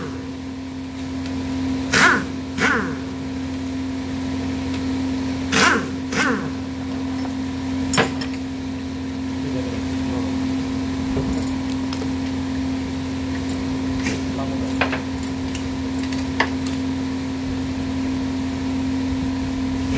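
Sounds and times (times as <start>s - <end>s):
workshop hum: 0.0s - 19.9s
pneumatic impact wrench bursts: 1.9s - 3.0s.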